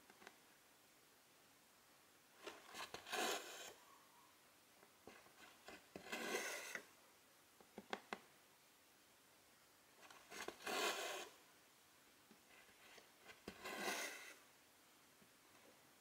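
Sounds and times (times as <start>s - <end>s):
thread rasping through fabric: 2.4s - 3.8s, 5.0s - 6.9s, 10.0s - 11.4s, 12.6s - 14.4s.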